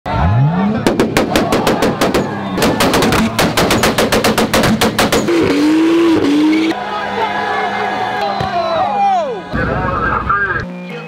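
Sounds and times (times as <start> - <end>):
car engine revving: 0.1 - 6.8
exhaust pops and bangs: 0.8 - 6.3.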